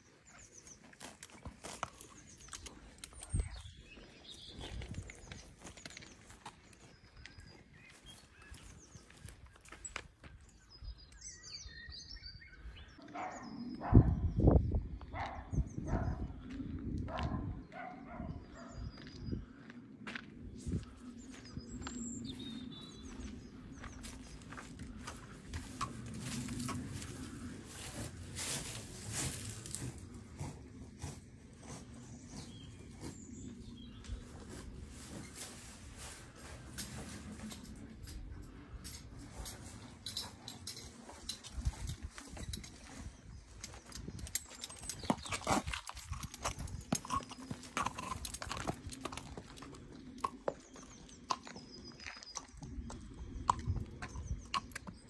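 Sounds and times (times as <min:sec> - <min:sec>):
footsteps: 0:23.1 - 0:37.9
horse hooves on pavement: 0:43.7 - 0:55.0.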